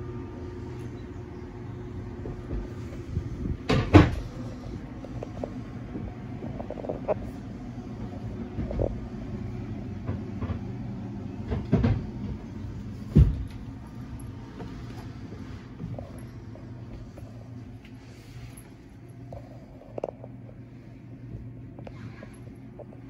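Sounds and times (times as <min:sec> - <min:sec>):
low hum: 0:00.0 - 0:23.0
footsteps on fibreglass deck: 0:02.2 - 0:06.5.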